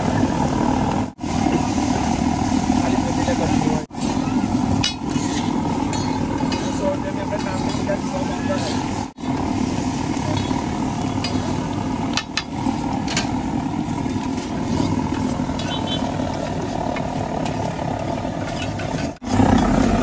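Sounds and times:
low rumble of street stall: 0:00.0 - 0:20.0.

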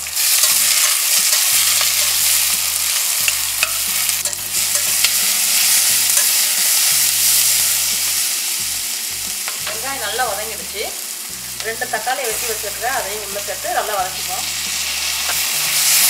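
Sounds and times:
onions sizzling in hot oil: 0:00.0 - 0:16.0
ladle clicking and scraping pot: 0:00.1 - 0:07.0.

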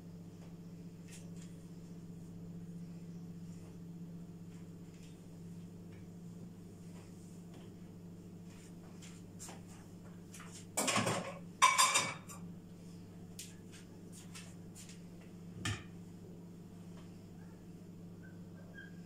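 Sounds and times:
dishes clattering: 0:10.8 - 0:12.4.

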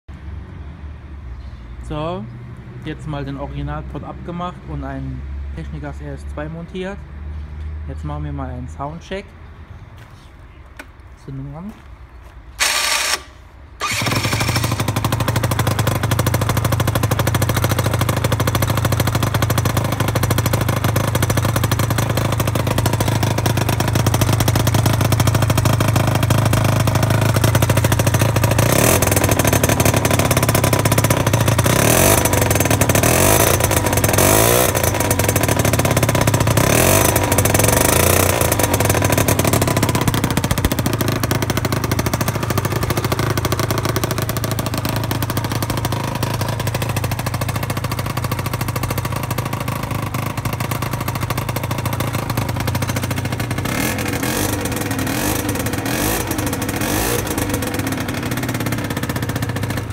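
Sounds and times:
scooter engine revving and idling: 0:12.6 - 0:59.9.

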